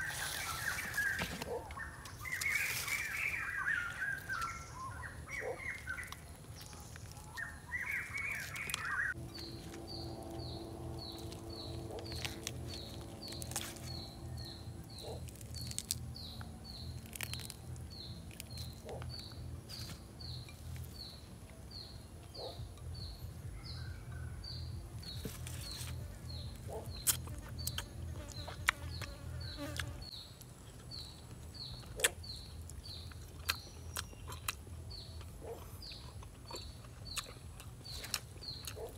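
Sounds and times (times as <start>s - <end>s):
clicks of chicken being torn: 11.1s - 14.0s, 14.9s - 19.2s.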